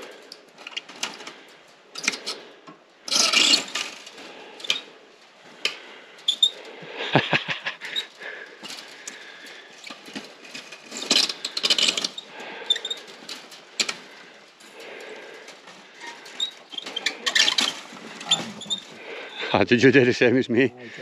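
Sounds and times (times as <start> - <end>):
wire fence rattling: 0.0 - 19.4
knocks and creaks on posts: 0.0 - 19.5
squeaks: 3.1 - 4.9, 6.2 - 6.7, 9.7 - 14.2, 15.9 - 19.4.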